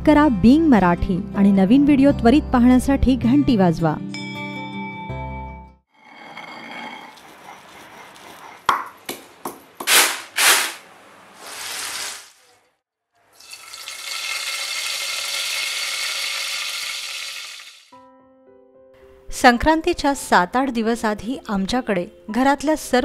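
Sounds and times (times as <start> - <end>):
short loud noise bursts: 9.9 - 12.4.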